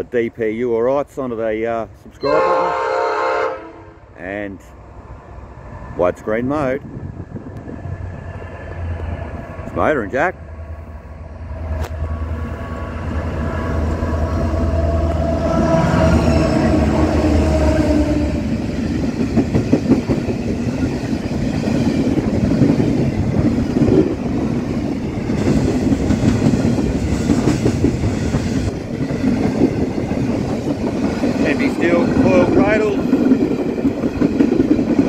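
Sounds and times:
diesel locomotives passing: 0.0 - 35.0
freight wagons rattling over rails: 18.4 - 35.0.

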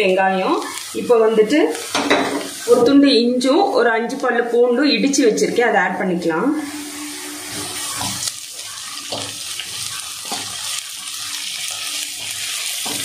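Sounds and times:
onions sizzling in hot oil: 0.0 - 13.0
metal spatula scraping: 6.7 - 13.0.

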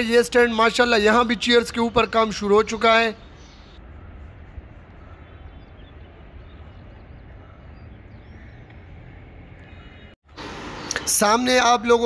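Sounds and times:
faint bird chirps: 2.2 - 10.2.

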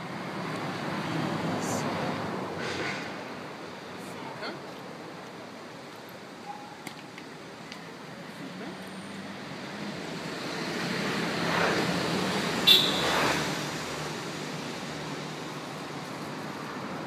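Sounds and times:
vehicle passing: 8.5 - 17.0.

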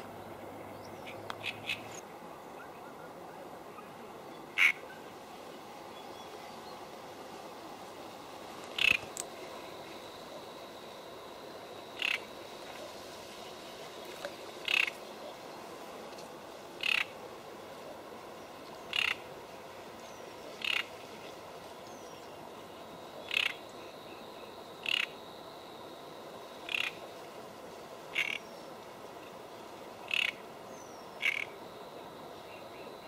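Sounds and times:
soft hiss: 0.0 - 33.0
frog croaking: 4.6 - 4.8, 8.7 - 9.3, 11.9 - 12.4, 14.6 - 15.0, 16.8 - 17.2, 18.9 - 19.2, 20.6 - 20.9, 23.2 - 25.3, 26.6 - 27.0, 28.1 - 28.5, 30.0 - 30.4, 31.2 - 31.6.

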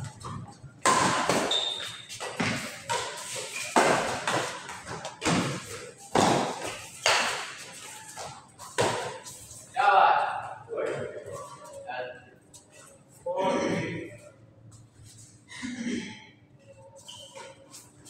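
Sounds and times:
badminton racket hitting shuttlecock: 0.8 - 7.7.

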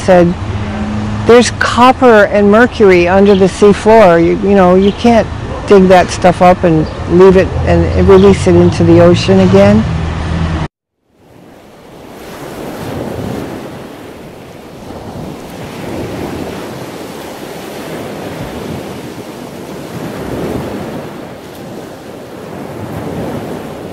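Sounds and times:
waves washing onto shore: 11.1 - 23.9
wind buffeting microphone: 11.2 - 23.9.

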